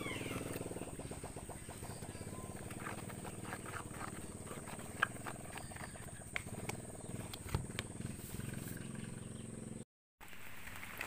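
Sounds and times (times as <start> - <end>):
stick scraping in plastic tub: 1.8 - 8.8.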